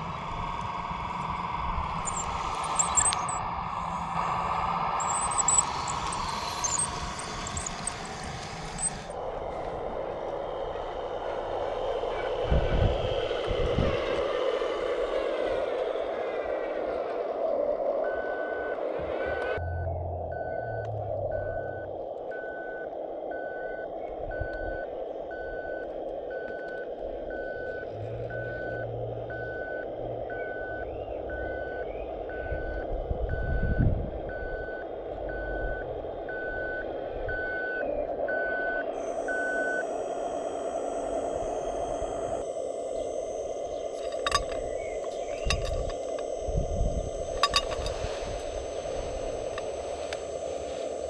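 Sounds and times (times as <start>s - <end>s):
electric drive whine: 0.0s - 51.0s
reversing beeper: 1.1s - 9.6s, 18.0s - 51.0s
gravel sliding clicks: 1.9s - 4.3s, 5.0s - 9.2s.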